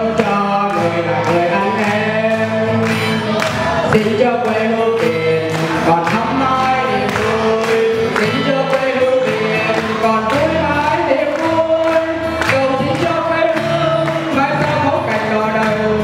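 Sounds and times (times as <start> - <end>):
group singing slow song: 0.0 - 16.0.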